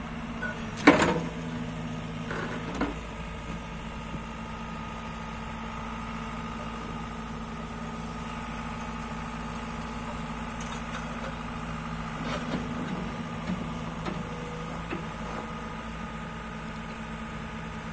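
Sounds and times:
excavator diesel engine idling: 0.0s - 17.9s
clunks and rattles: 0.4s - 1.4s.

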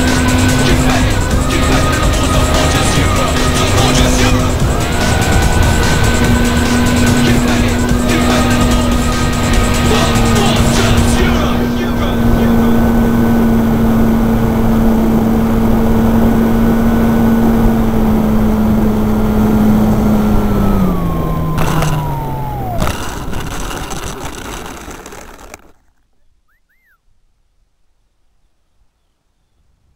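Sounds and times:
model plane motor humming: 0.0s - 26.3s.

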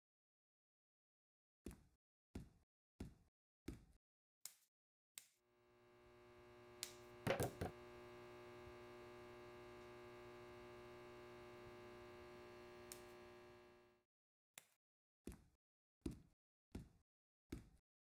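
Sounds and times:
droning hum of stacked tones: 5.5s - 14.0s
knocks: 7.3s - 7.8s.

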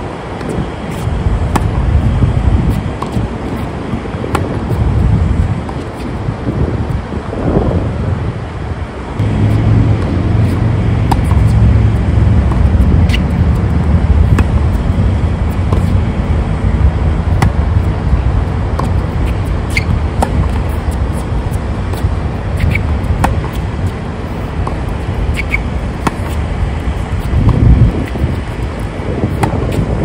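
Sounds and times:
steady low rumble: 0.0s - 30.0s
tennis ball hitting racquets: 0.4s - 1.9s, 2.7s - 4.8s, 9.2s - 16.0s, 17.3s - 30.0s.

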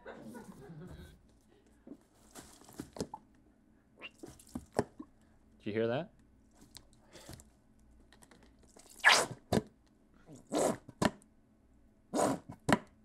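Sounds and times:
squeeze bottle sputtering: 8.9s - 9.3s.

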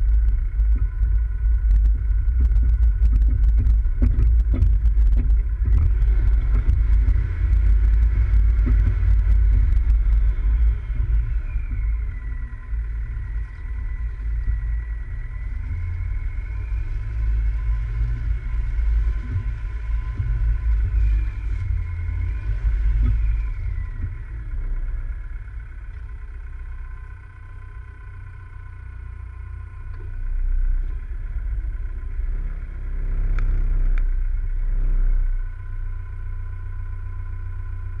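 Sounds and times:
high engine whine: 0.0s - 38.0s
off-road vehicle engine rumbling: 0.0s - 38.0s.

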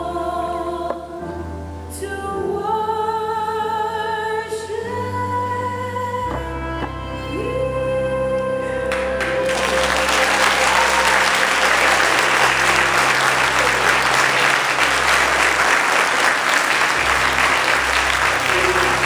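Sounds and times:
recorded music: 0.0s - 19.0s
congregation applauding: 8.8s - 19.0s.

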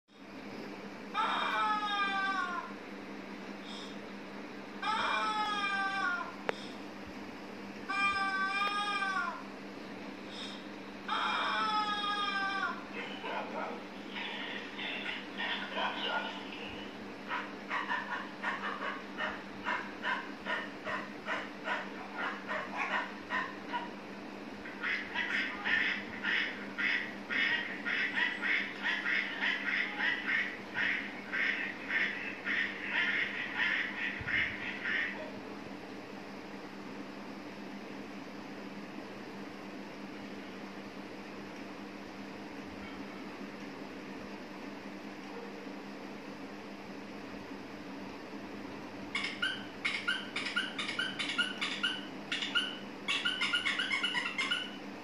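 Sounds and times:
high squeaky animal calls from phone: 49.1s - 54.8s.

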